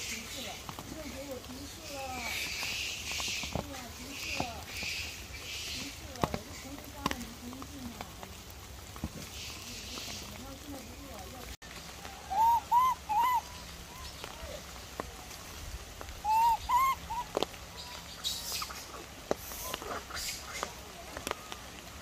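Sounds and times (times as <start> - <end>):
animal hooting: 12.3 - 13.5, 16.2 - 17.3.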